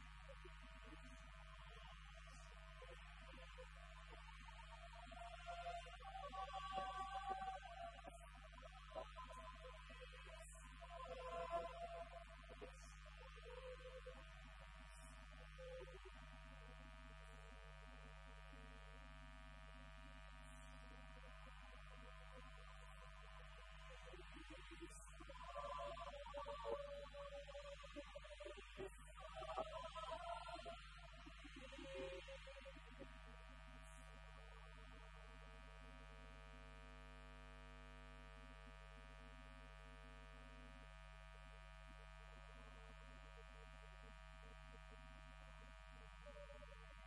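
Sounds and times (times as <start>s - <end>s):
choir singing softly: 0.8s - 16.2s, 21.5s - 33.0s, 46.2s - 46.9s.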